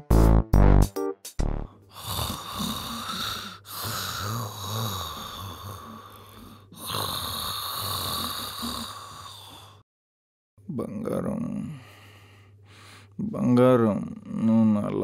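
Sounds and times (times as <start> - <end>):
person snoring: 1.5 - 9.8.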